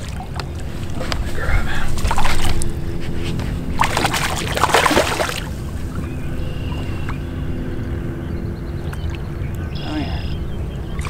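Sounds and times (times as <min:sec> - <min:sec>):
steady low rumble: 0:00.0 - 0:11.0
fish splashing at the surface: 0:03.8 - 0:05.5.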